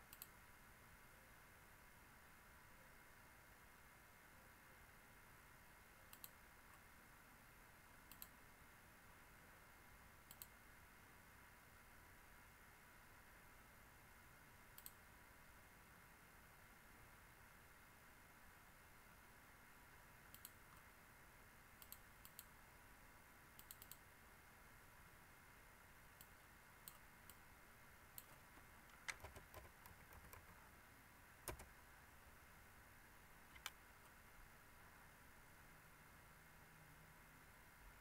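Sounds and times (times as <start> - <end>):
computer mouse clicks: 0.0 - 0.4, 6.1 - 6.8, 8.1 - 8.4, 10.2 - 10.6, 14.7 - 15.0, 20.3 - 20.9, 21.8 - 22.5, 23.6 - 24.1, 26.2 - 27.4, 28.1 - 30.7, 31.4 - 31.7, 33.5 - 34.2
steady low hiss: 0.0 - 38.0
keyboard keystrokes: 28.2 - 30.6, 31.5 - 31.7, 33.5 - 33.8.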